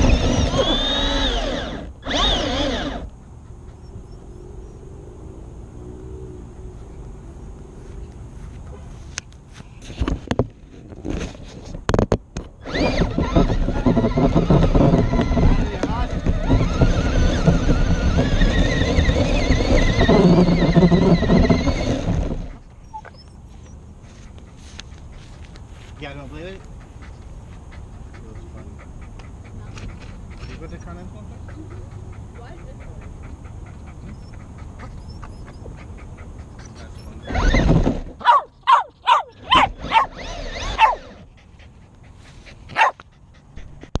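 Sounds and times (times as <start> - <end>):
electric motor whine: 0.0 - 3.1, 12.6 - 22.7, 39.4 - 41.3
tyre and chassis rushing noise: 9.8 - 22.8, 35.8 - 41.4
dog barking: 38.2 - 40.2, 40.8 - 41.1, 42.7 - 43.0.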